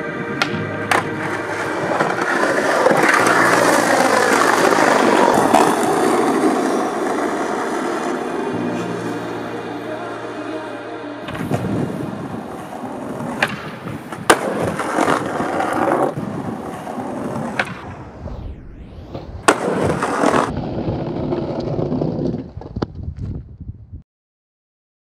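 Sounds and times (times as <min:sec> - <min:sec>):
skateboard wheels rolling on pavement: 0:00.0 - 0:09.7, 0:11.2 - 0:18.3, 0:19.1 - 0:23.9
skateboard clacking on ground: 0:00.4 - 0:08.2, 0:12.5 - 0:17.8.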